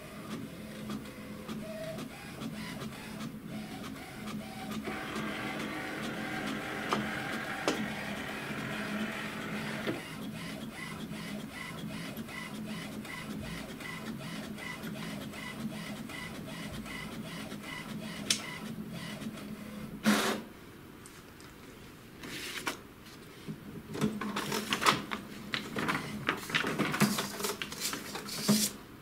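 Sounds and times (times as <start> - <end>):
printer motor whir: 0.7 - 19.5
print carriage ticking: 4.6 - 10.1
printer short loud burst: 4.8 - 10.0, 20.0 - 20.5.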